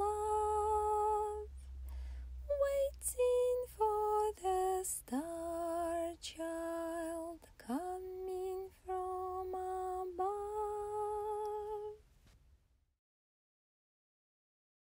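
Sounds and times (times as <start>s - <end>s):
woman singing long notes: 0.0s - 1.6s, 2.5s - 12.0s.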